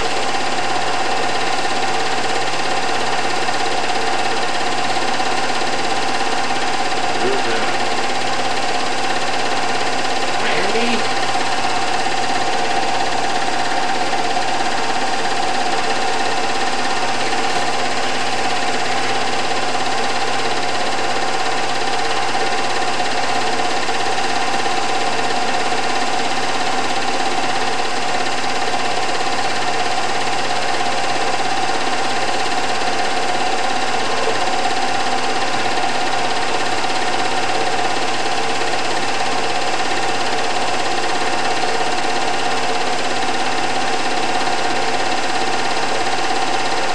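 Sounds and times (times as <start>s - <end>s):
film projector whirring: 0.0s - 46.9s
constant hum: 7.0s - 8.1s.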